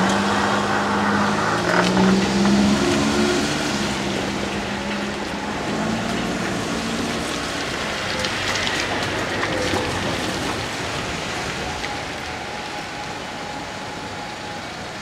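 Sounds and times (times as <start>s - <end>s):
train wheel and running noise: 4.1s - 15.0s.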